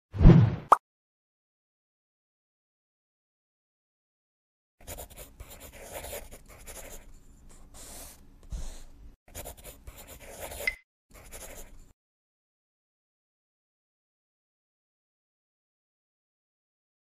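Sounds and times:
marker writing on a board: 0:04.8 - 0:11.8.

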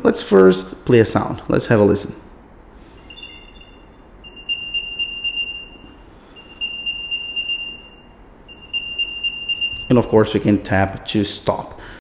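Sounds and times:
high electronic tone: 0:02.9 - 0:10.2.

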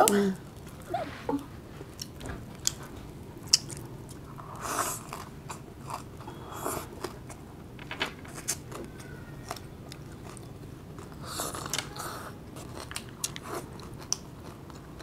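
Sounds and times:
chewing crunchy vegetables: 0:08.7 - 0:15.0.

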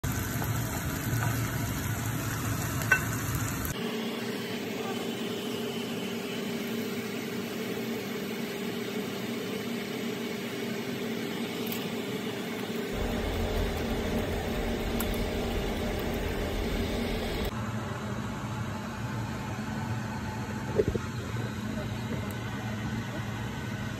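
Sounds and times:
shrimp frying in a wok: 0:00.0 - 0:17.5
spatula tapping wok: 0:02.6 - 0:03.3
low hum: 0:12.9 - 0:17.5.

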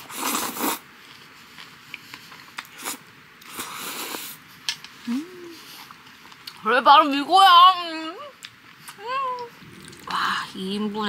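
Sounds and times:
person slurping and chewing noodles: 0:00.0 - 0:04.4
person humming: 0:05.0 - 0:05.7.

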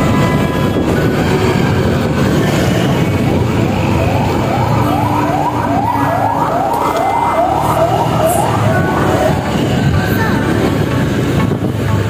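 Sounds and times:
wind on microphone: 0:00.0 - 0:12.0
siren yelping: 0:03.6 - 0:09.9.

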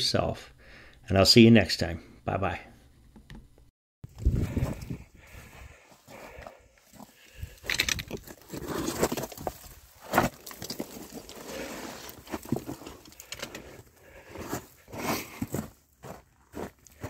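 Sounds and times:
footsteps crunching on cinder: 0:04.1 - 0:17.0.

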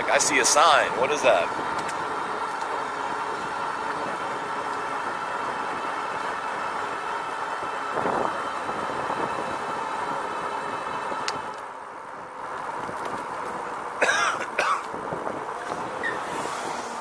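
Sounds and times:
electric bike motor whine: 0:01.2 - 0:13.9, 0:14.9 - 0:17.0.

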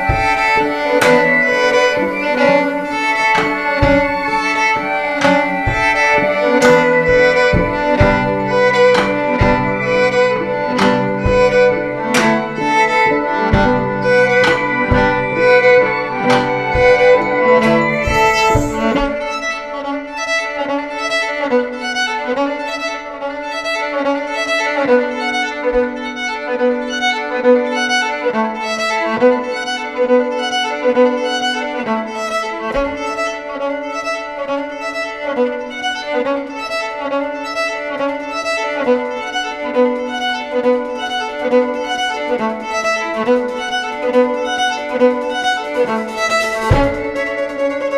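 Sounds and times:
drum strokes: 0:00.0 - 0:19.8, 0:38.2 - 0:47.9
violin notes repeating: 0:00.0 - 0:20.4, 0:32.7 - 0:47.9.

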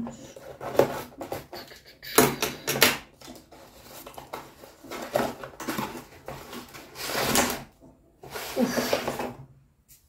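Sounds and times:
scissors cutting cardboard: 0:00.4 - 0:07.7
cardboard flap rustling: 0:03.2 - 0:09.4.

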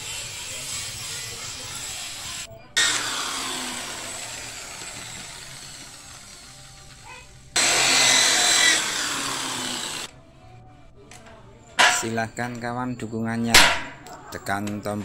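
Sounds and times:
electric drill drilling sheet steel: 0:00.0 - 0:10.1.

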